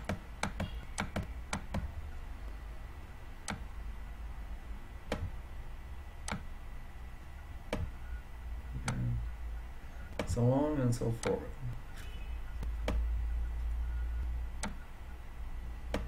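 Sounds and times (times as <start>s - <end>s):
computer mouse clicks: 0.0s - 1.9s, 3.4s - 3.7s, 6.2s - 6.5s, 8.8s - 9.0s, 11.2s - 11.4s, 14.6s - 14.8s
low steady hum: 0.0s - 16.0s.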